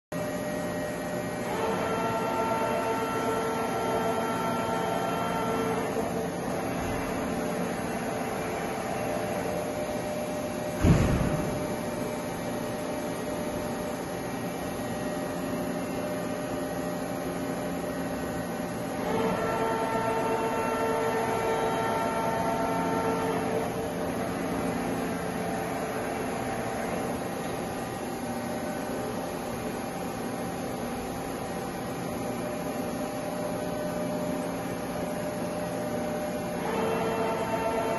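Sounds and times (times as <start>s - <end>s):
machine steady hum: 0.1s - 37.9s
loud clunk: 10.7s - 11.9s.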